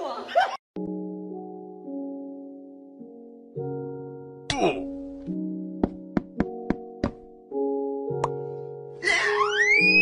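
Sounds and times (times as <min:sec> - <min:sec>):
wailing tone sliding upward: 0:09.0 - 0:10.0.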